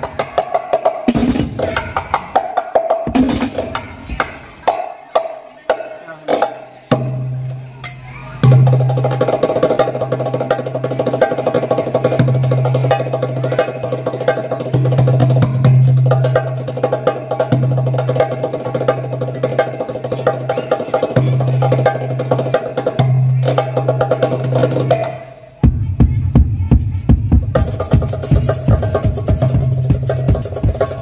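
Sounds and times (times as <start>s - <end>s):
frame drums: 0.0s - 31.0s
hand drum strikes and rolls: 27.1s - 31.0s.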